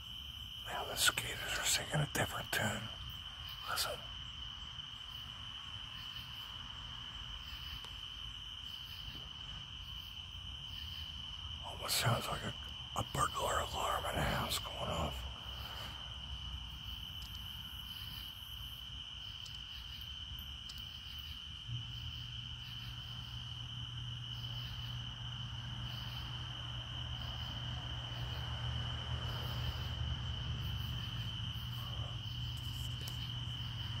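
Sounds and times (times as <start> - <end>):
cicadas high-pitched tone: 0.0 - 34.0
low steady hum: 20.7 - 34.0.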